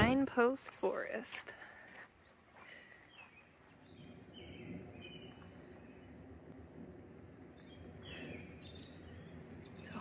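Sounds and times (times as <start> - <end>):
low rumble: 3.7 - 10.0.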